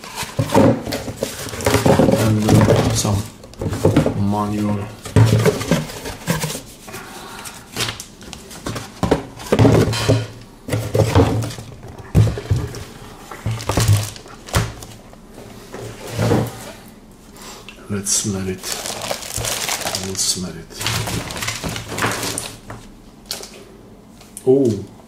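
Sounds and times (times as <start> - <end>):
cardboard and plastic being handled: 0.0 - 15.0, 18.6 - 23.5.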